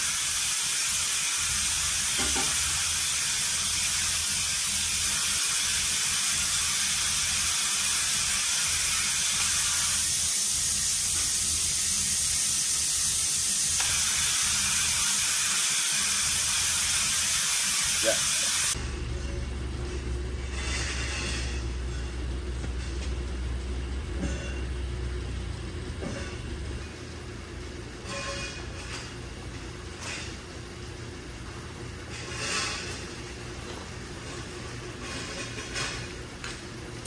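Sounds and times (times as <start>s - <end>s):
hydraulic pump hissing: 0.0s - 18.8s
low hum: 18.7s - 29.6s.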